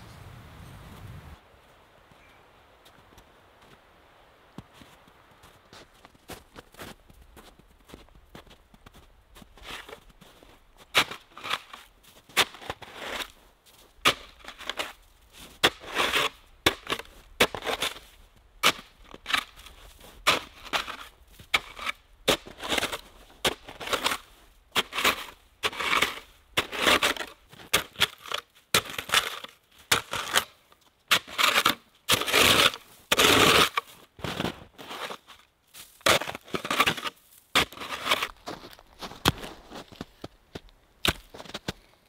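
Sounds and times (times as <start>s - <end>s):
snow shovel scooping packed snow: 9.6s - 40.3s.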